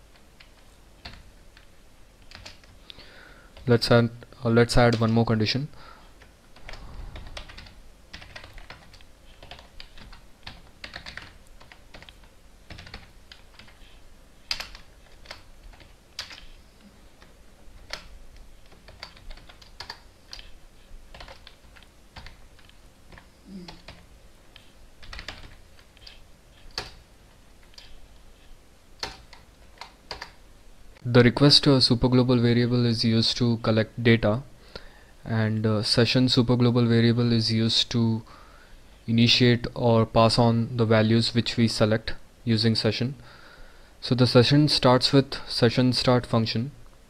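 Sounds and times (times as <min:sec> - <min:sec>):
typing on computer keyboard: 0:00.1 - 0:02.8, 0:06.6 - 0:16.6, 0:17.2 - 0:20.5, 0:21.1 - 0:27.0, 0:29.0 - 0:30.4.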